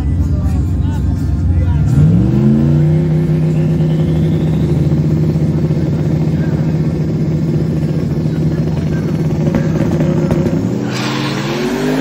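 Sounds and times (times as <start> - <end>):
truck engine at raised revs: 0.0 - 12.0
faint rising whistle: 3.2 - 5.2.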